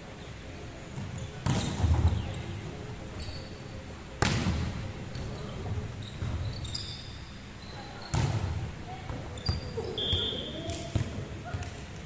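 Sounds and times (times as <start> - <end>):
volleyball hit echoing: 4.2 - 4.7.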